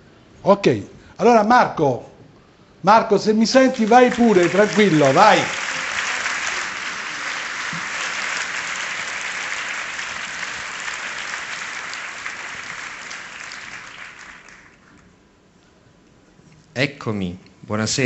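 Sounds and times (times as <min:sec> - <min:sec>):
audience applauding: 0:03.6 - 0:15.1.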